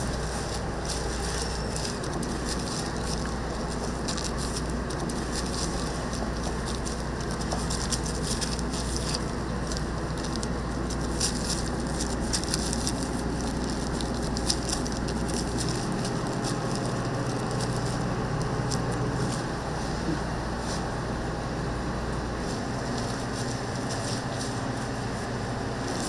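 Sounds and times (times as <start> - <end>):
hot oil crackling and spattering: 0.0 - 19.1
steady low hum: 0.0 - 26.0.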